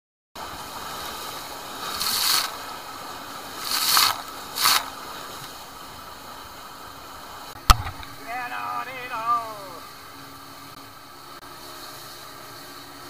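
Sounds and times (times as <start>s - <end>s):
loud water splashes: 0.8s - 2.7s.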